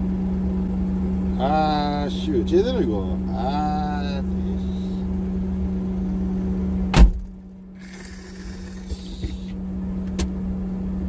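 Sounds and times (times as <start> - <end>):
truck engine rumbling: 0.0 - 10.2
loud thump: 6.9 - 7.4.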